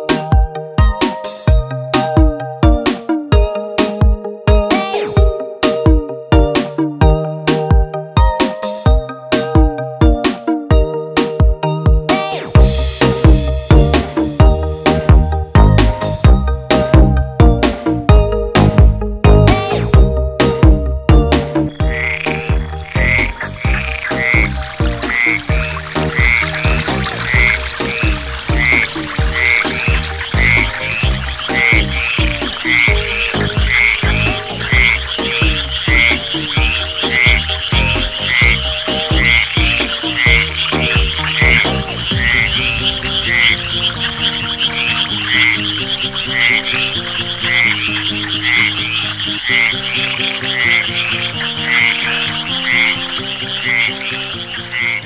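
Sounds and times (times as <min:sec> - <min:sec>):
background music: 0:00.0 - 0:55.0
low rhythmic pulsing: 0:12.6 - 0:53.3
frogs croaking: 0:21.6 - 0:55.0.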